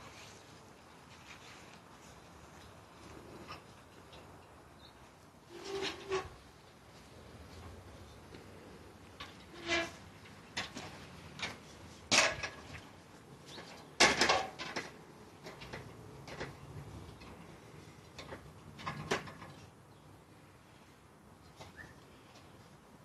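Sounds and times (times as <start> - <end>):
metal ladder knocks and clanks: 9.2 - 12.9, 13.5 - 16.6, 18.1 - 19.6.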